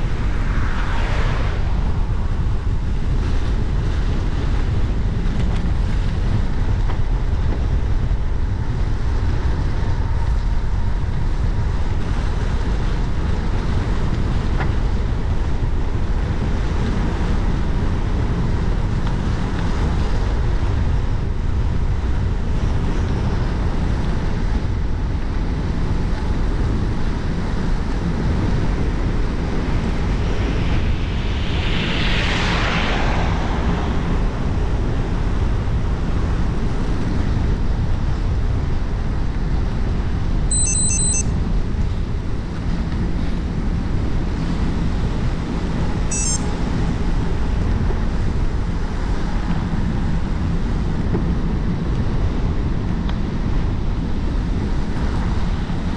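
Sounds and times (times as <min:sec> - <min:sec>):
dense low rumble: 0:00.0 - 0:11.9, 0:28.6 - 0:40.3
wind rush on microphone: 0:00.0 - 0:55.9
high electronic beeps: 0:40.5 - 0:41.3, 0:46.1 - 0:46.5.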